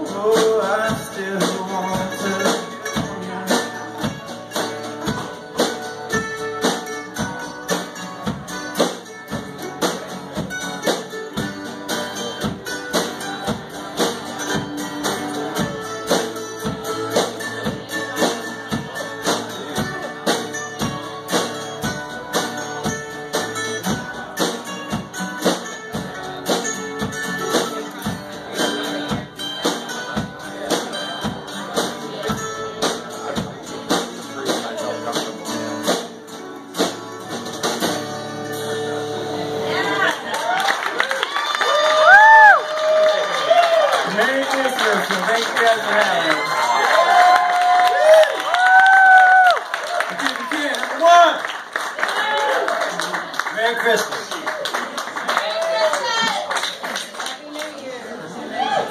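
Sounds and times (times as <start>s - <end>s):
strummed acoustic guitar: 0.0s - 40.3s
mandolin: 0.0s - 40.6s.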